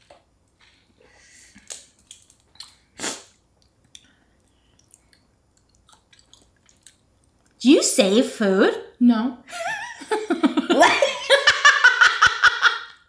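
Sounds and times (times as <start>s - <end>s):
chewing with clicks and smacks: 1.5s - 7.6s.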